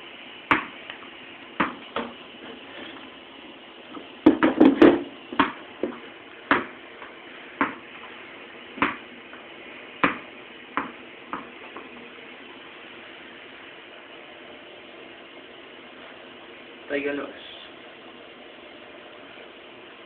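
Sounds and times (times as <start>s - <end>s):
ball knocking on hard floor: 0.5s - 1.0s, 1.6s - 2.2s, 3.9s - 7.8s, 8.8s - 9.4s, 10.0s - 11.9s.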